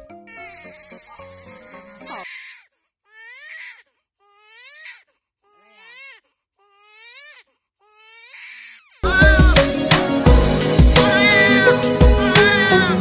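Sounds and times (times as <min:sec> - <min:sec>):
newborn baby crying: 0:00.3 - 0:09.6, 0:11.0 - 0:13.0
loud music: 0:09.0 - 0:13.0.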